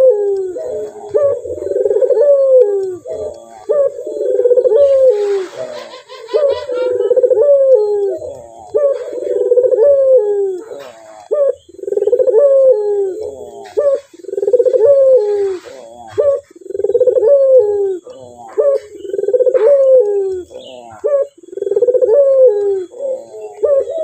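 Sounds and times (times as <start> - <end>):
dove cooing: 0.0 - 24.0
higher sliding bird calls: 4.2 - 7.6.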